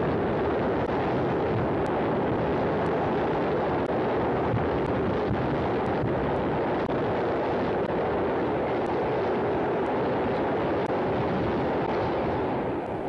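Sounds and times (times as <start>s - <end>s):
dense roaring noise: 0.0s - 13.0s.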